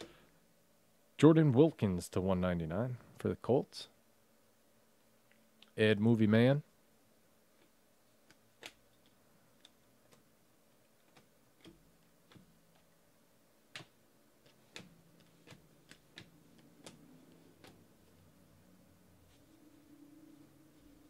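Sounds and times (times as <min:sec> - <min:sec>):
trading cards clicking and sliding: 0:08.2 - 0:12.9, 0:13.7 - 0:18.5.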